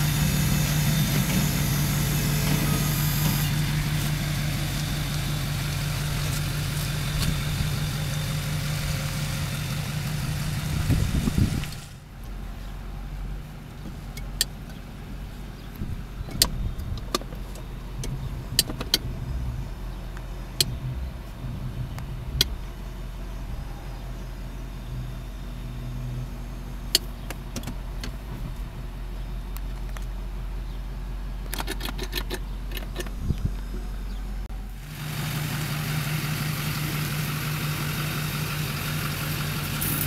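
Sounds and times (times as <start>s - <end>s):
pickup engine idling: 0.0s - 40.0s
sharp clicks and knocks: 26.9s - 28.2s, 31.4s - 33.9s.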